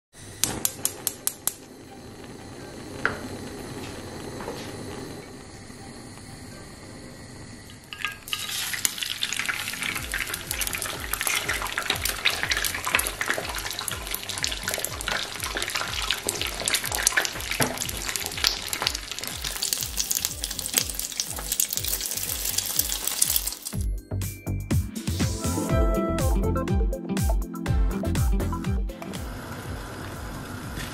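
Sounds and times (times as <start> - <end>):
egg sizzling in hot oil: 0.4 - 23.8.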